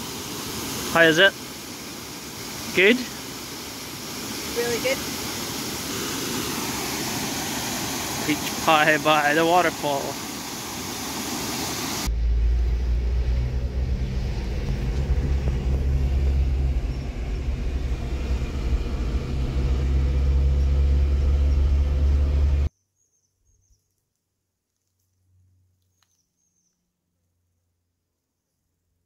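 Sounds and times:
waterfall rushing: 0:00.0 - 0:12.1
car driving rumble: 0:12.0 - 0:22.7.

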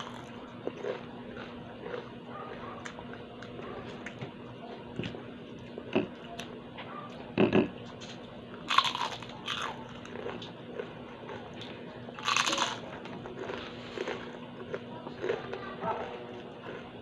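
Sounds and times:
chewing: 0:00.0 - 0:17.0
crunching bites into crispy leaves: 0:08.7 - 0:10.5, 0:12.2 - 0:14.3.

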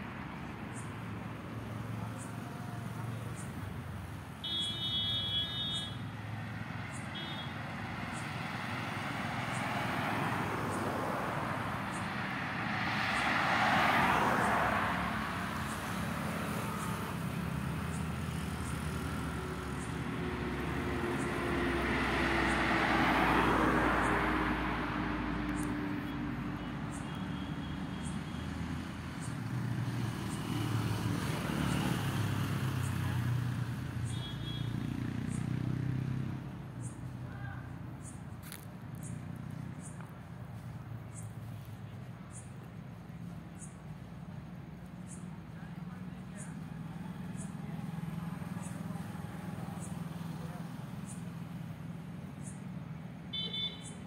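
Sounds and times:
vehicles passing: 0:00.0 - 0:54.0.

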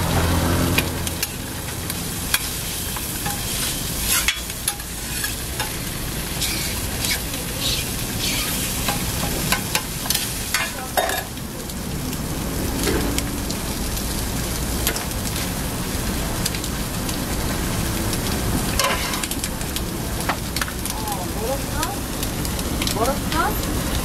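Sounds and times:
food sizzling on griddle: 0:00.0 - 0:24.0
metal tongs scraping griddle: 0:02.3 - 0:11.3, 0:18.8 - 0:19.4.

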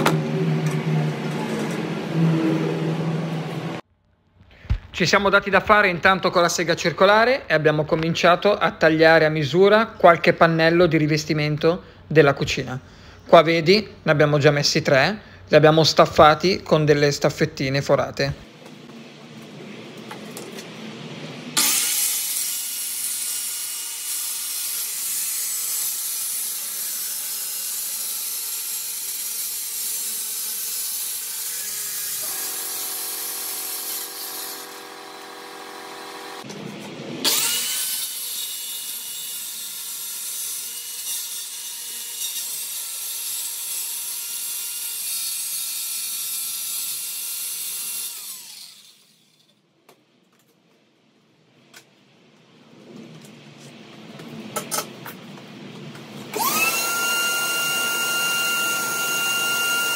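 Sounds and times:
circular saw cutting wood: 0:21.5 - 0:36.5, 0:37.2 - 0:49.5, 0:56.3 - 0:59.9.

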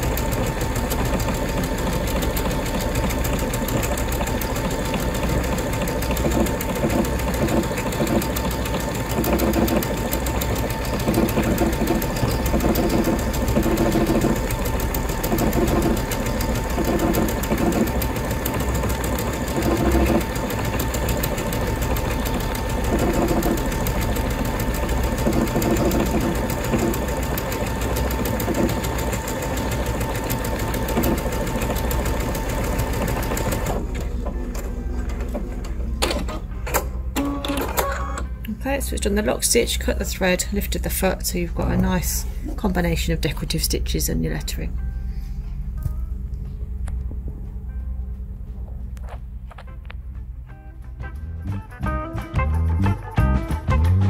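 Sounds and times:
sewing machine stitching: 0:00.0 - 0:36.4
low hum: 0:38.4 - 0:51.8.

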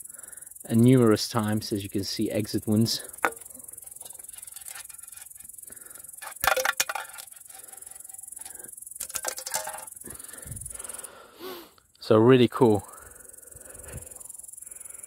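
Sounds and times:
metal cans clinking and rattling: 0:03.0 - 0:10.2.

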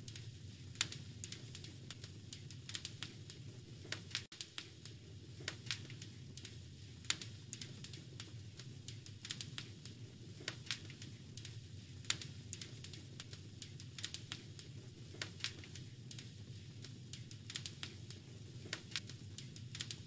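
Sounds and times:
fire crackling and popping: 0:00.0 - 0:20.0
low fire rumble: 0:00.0 - 0:20.0.

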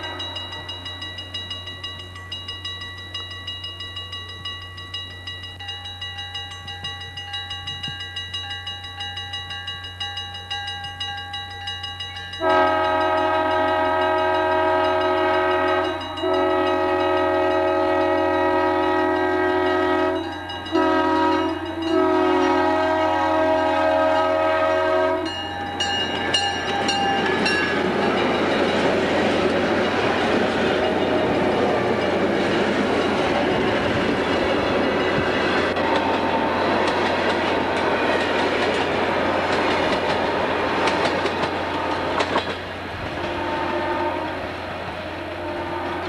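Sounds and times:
locomotive air horn blasts: 0:00.0 - 0:00.7, 0:12.4 - 0:25.4, 0:43.1 - 0:44.5, 0:45.2 - 0:46.0
bell ringing rapidly: 0:00.0 - 0:13.2, 0:14.0 - 0:16.5, 0:20.2 - 0:22.0, 0:25.3 - 0:28.9.

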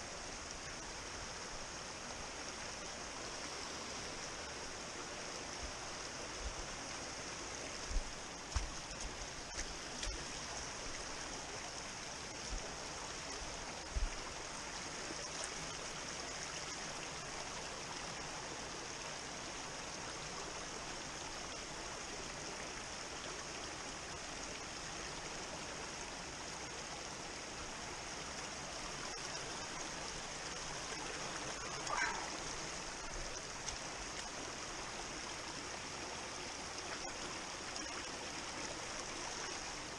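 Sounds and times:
stream babbling over rocks: 0:00.0 - 0:39.9.

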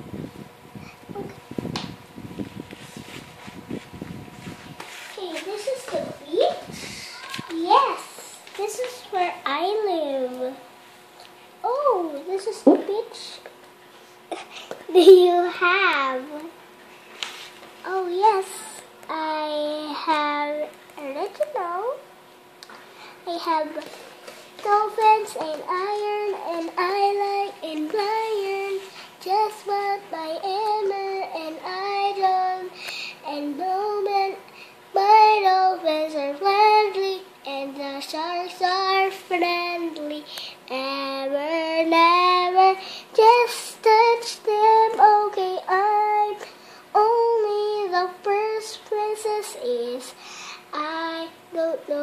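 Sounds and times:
child singing: 0:05.2 - 0:10.6, 0:14.9 - 0:16.6, 0:17.8 - 0:22.0, 0:23.3 - 0:24.0, 0:24.6 - 0:52.0.

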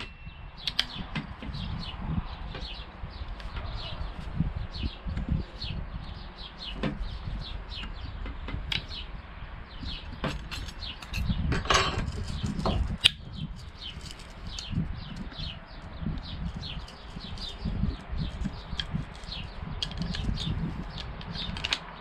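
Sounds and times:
small birds chirping: 0:00.0 - 0:22.0
tool blades rattling: 0:10.1 - 0:15.6, 0:16.4 - 0:21.8.

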